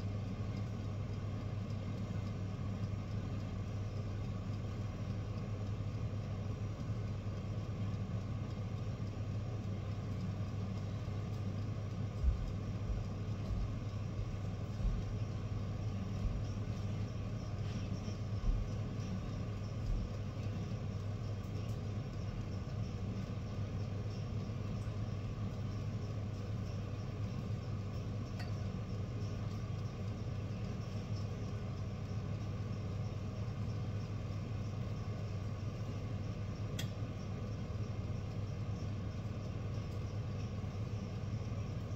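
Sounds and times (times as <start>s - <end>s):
machine humming: 0.0s - 41.9s
soft low thumps: 12.2s - 15.4s, 16.1s - 16.6s.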